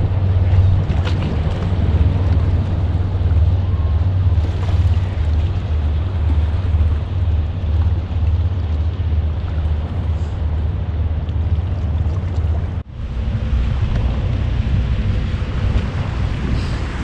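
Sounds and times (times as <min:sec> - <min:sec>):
wind blowing over microphone: 0:00.0 - 0:17.0.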